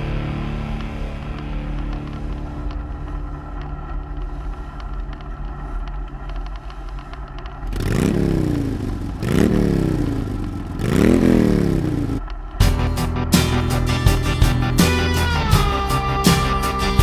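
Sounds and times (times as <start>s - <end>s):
single-cylinder engine revving: 7.7s - 12.3s.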